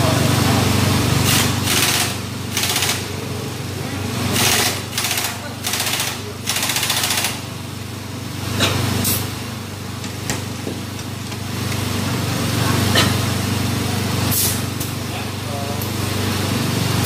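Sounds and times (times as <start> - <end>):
low engine-like hum: 0.0 - 17.0
pneumatic impact wrench: 1.2 - 3.1, 4.3 - 7.5, 8.6 - 9.3, 14.3 - 14.6.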